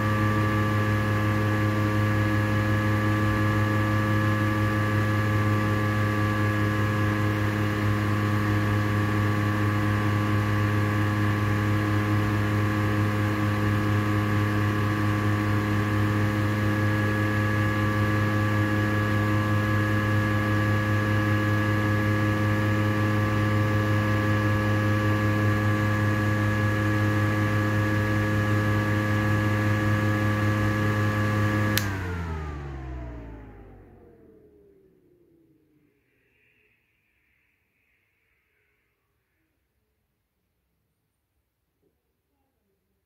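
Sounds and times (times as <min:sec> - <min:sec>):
exhaust fan running: 0:00.0 - 0:36.5
fan switch click: 0:31.7 - 0:32.2.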